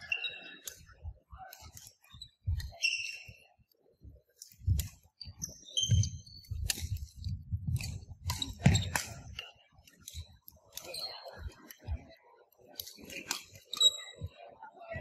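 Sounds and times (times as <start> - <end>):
shoes squeaking on wooden floor: 5.3 - 6.5.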